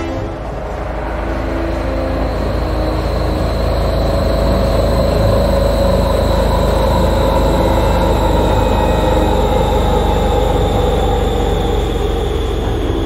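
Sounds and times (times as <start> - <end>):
spaceship engine rumble: 0.0 - 13.0.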